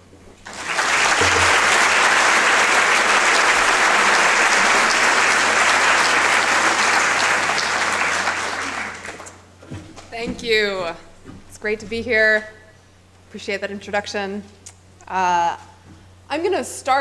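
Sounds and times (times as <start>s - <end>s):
audience applauding: 0.4s - 9.5s.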